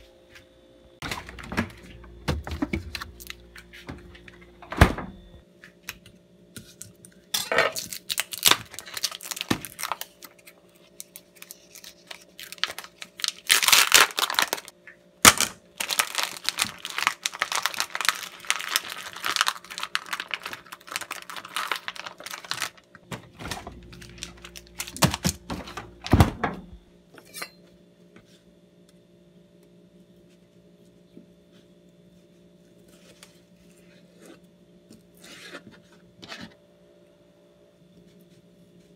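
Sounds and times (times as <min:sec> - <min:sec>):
plastic packaging tearing and crinkling: 0:02.8 - 0:03.4, 0:07.5 - 0:26.1.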